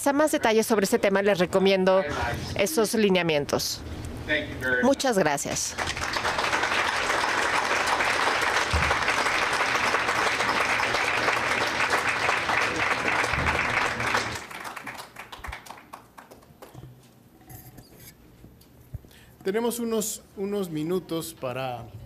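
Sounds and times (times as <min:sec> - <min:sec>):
audience applauding: 0:05.8 - 0:16.8.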